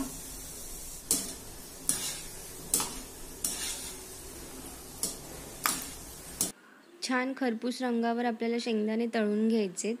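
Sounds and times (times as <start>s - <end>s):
peanuts sizzling in hot oil: 0.0s - 6.5s.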